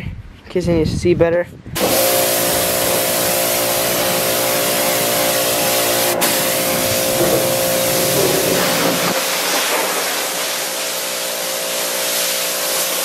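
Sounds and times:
high-pressure water jet hissing: 1.8s - 13.0s
pressure washer motor hum: 1.8s - 13.0s.

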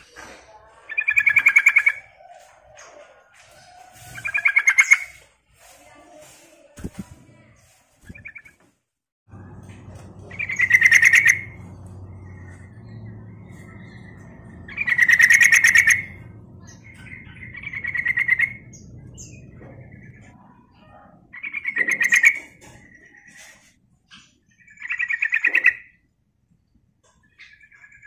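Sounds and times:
bird chattering song: 0.0s - 3.0s, 3.9s - 5.2s, 8.0s - 8.6s, 9.9s - 26.1s, 27.0s - 28.0s.

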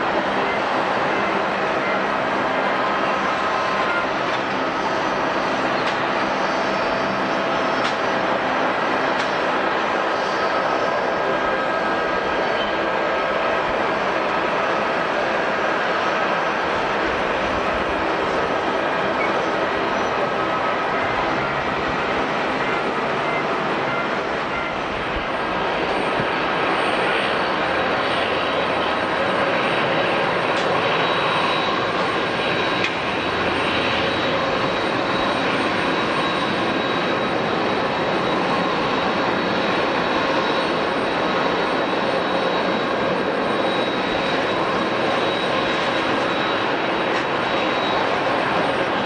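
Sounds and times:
aircraft engines running: 0.0s - 49.0s.

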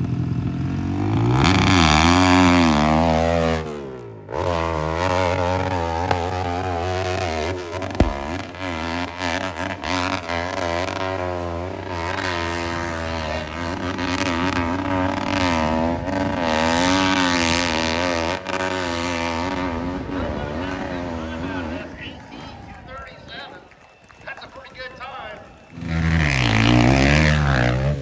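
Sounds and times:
dirt bike engine revving: 0.9s - 20.0s, 25.8s - 28.0s.

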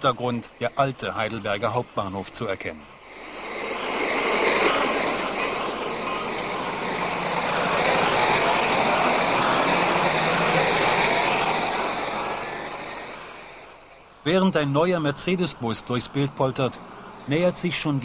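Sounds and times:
traffic rumble and hiss: 0.0s - 18.0s
faint sliding whines: 2.9s - 14.2s.

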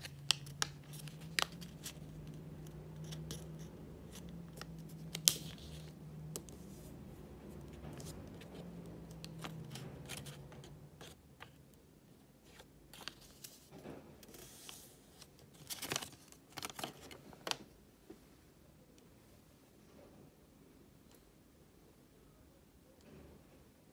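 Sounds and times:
paper rustling and crinkling: 0.0s - 2.4s, 3.0s - 6.9s, 12.4s - 17.6s.

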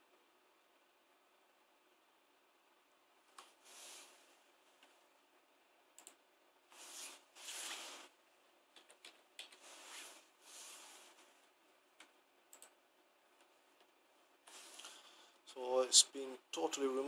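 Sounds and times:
soft hiss: 0.0s - 17.0s
small clicks: 6.0s - 6.2s, 12.0s - 12.8s.

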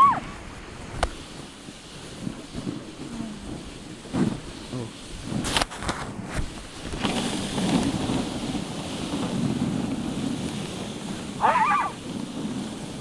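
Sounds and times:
sled runners sliding over snow: 0.0s - 13.0s
wind on microphone: 0.0s - 13.0s
dog yelp: 11.4s - 12.0s.

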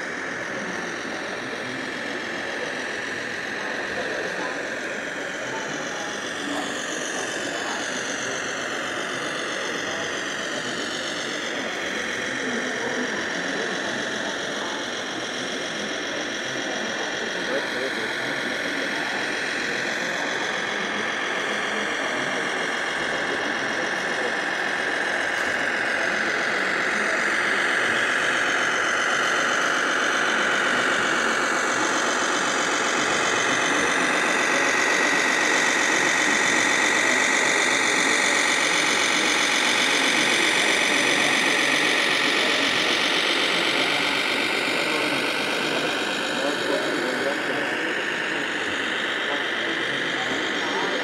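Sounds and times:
toy truck motor running: 0.0s - 51.0s.

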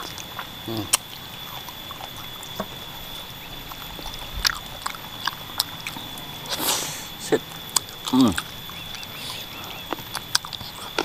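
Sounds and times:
person chewing and sucking: 3.7s - 11.0s.

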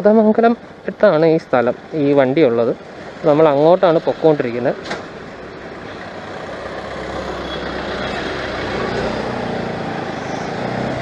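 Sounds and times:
road noise: 0.0s - 11.0s
rushing air: 2.8s - 11.0s.

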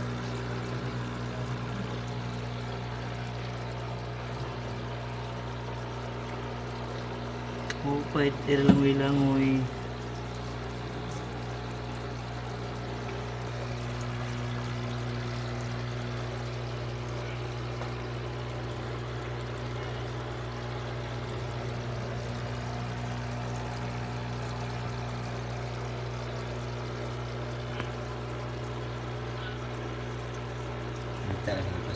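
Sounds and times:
water pouring and splashing: 0.0s - 31.9s
water pump humming: 0.0s - 31.9s.

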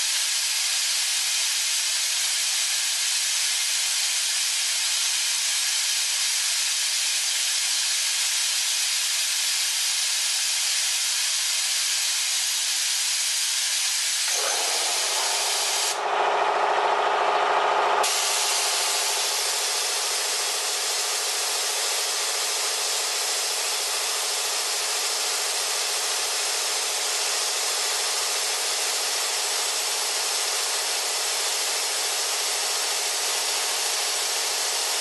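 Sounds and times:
low hum with overtones: 15.9s - 18.0s
compressed air hissing: 18.0s - 35.0s.

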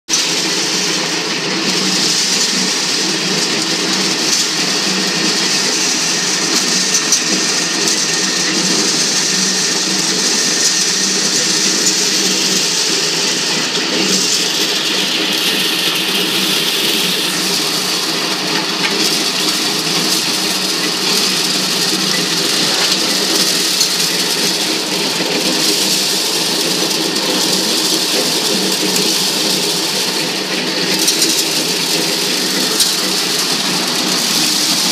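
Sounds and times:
maize sheller machine running: 0.1s - 34.9s.

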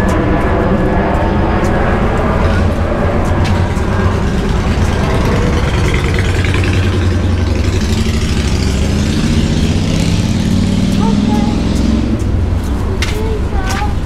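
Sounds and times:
street noise: 0.0s - 14.0s
vehicle engine rumbling: 0.0s - 14.0s.

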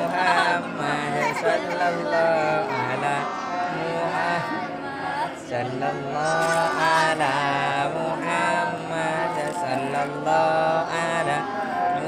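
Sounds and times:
voices chanting: 0.0s - 12.0s.

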